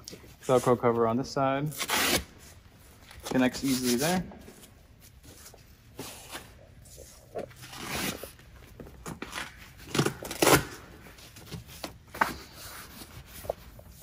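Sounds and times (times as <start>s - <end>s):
velcro ripping apart: 1.7s - 2.4s, 9.4s - 10.8s.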